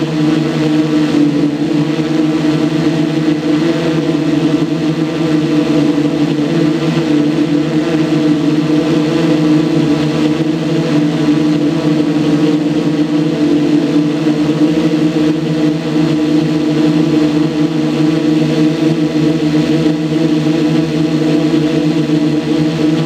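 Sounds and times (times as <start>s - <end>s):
model aircraft engine buzzing: 0.0s - 23.0s.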